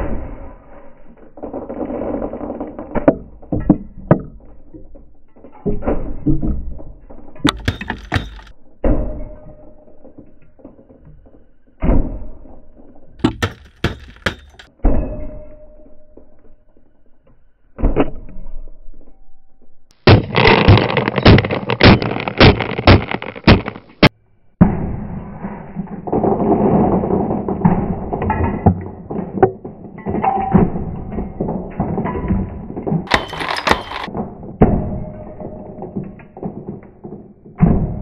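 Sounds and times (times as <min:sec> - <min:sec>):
hammer smashing plastic toy: 0:07.5 - 0:08.5, 0:13.2 - 0:14.7, 0:20.0 - 0:24.1, 0:33.0 - 0:34.7
marbles clattering across mat: 0:20.0 - 0:24.1, 0:33.0 - 0:34.1.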